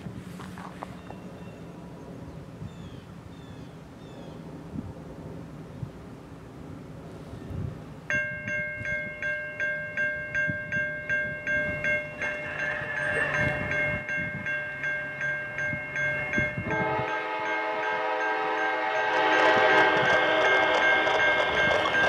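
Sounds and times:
railroad crossing bell ringing: 8.1s - 22.0s.

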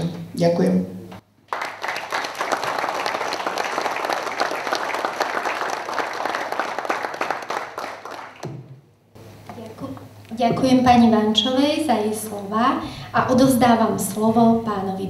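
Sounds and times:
audience applauding: 1.4s - 8.7s.

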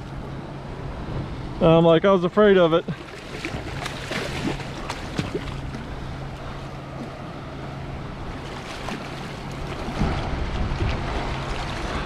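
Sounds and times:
low hum: 0.0s - 12.0s
wind and water noise: 0.0s - 12.0s
shark splashing at surface: 3.2s - 5.7s.

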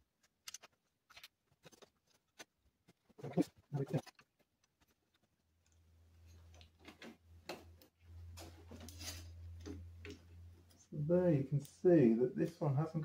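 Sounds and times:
low steady hum: 5.4s - 13.0s.

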